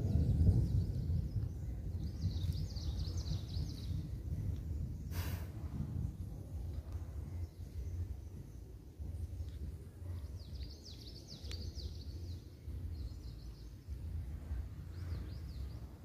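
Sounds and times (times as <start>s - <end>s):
bird chirping: 0.0s - 5.0s, 6.1s - 16.0s
steady low rumble: 0.0s - 16.0s
short hiss: 5.1s - 5.6s.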